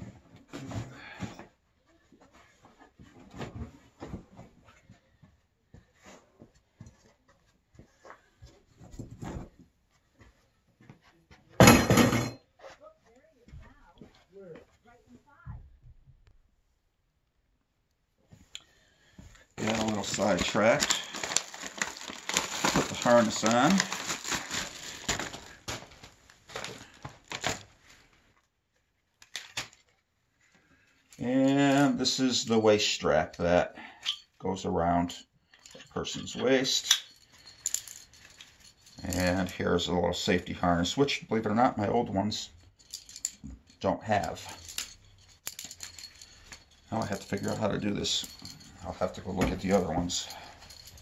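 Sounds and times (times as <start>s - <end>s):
rustling of nylon cover: 19.5s - 28.3s.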